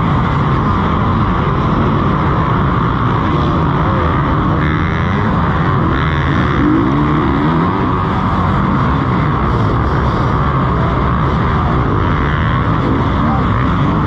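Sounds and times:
motocross bike engines racing: 0:00.0 - 0:14.0
motorbike engine revving hard: 0:00.0 - 0:14.0.

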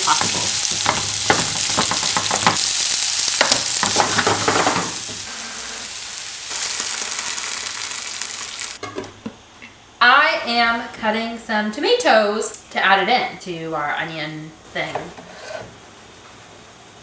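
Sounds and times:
onions sizzling in oil: 0:00.0 - 0:08.8
water poured into hot pan hissing: 0:02.6 - 0:08.8.

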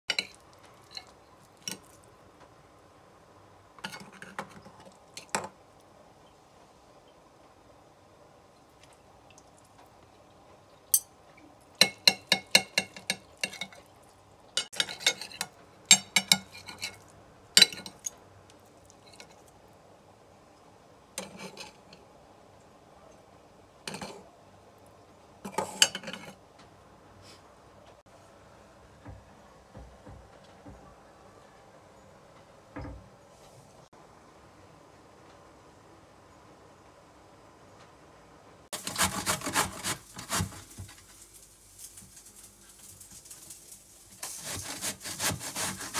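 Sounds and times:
fork and knife scraping a plate: 0:11.8 - 0:13.9, 0:14.6 - 0:18.1, 0:21.2 - 0:22.0.

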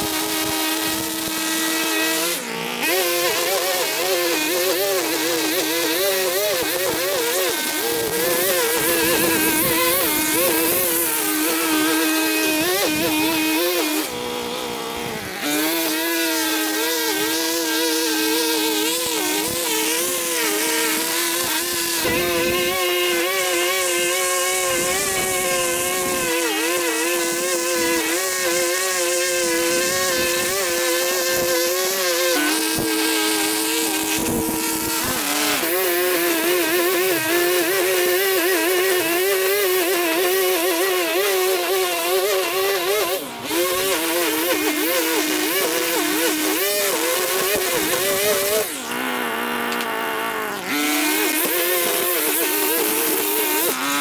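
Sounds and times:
small petrol engine running: 0:00.0 - 0:54.0.

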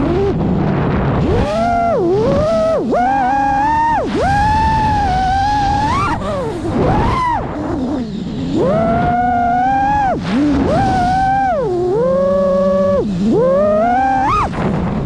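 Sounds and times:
quadcopter motors whining: 0:00.0 - 0:00.5, 0:01.2 - 0:15.0.

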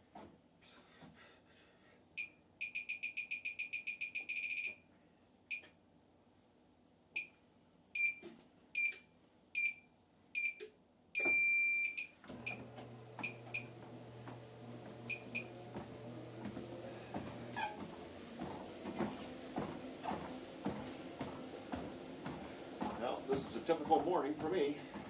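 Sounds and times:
keypad beeps: 0:02.6 - 0:04.8, 0:11.2 - 0:12.1
treadmill motor hum: 0:12.2 - 0:25.0.

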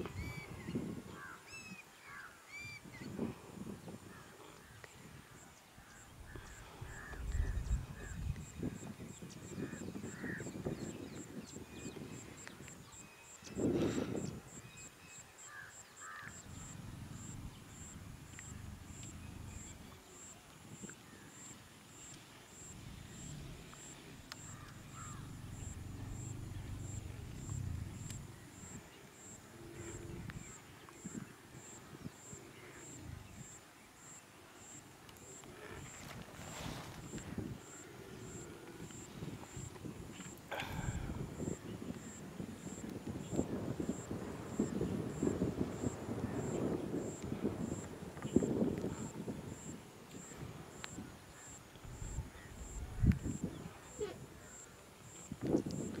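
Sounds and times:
low rumble: 0:06.2 - 0:08.7, 0:16.4 - 0:19.9, 0:24.2 - 0:28.6.

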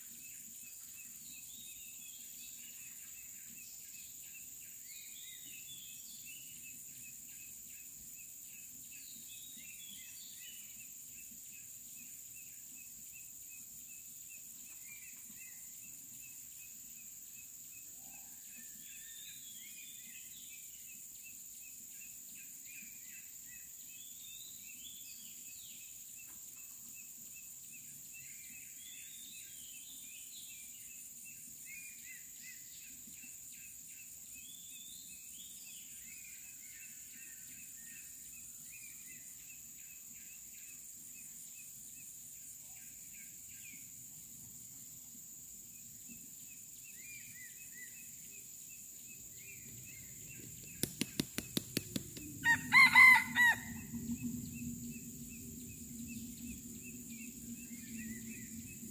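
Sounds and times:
high insect drone: 0:00.0 - 0:58.9
small birds chirping: 0:19.0 - 0:58.9.

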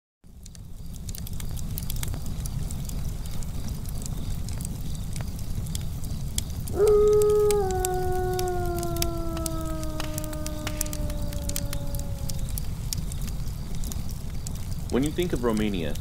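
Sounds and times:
faint crackles: 0:00.3 - 0:16.0
wolf howl: 0:06.7 - 0:12.8.

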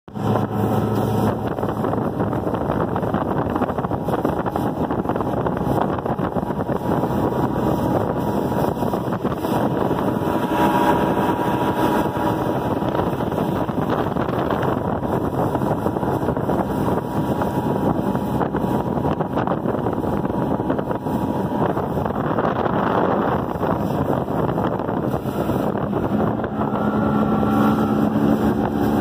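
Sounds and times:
outboard motor running: 0:00.1 - 0:29.0
water rushing past hull: 0:00.1 - 0:29.0
wind on microphone: 0:00.1 - 0:29.0.

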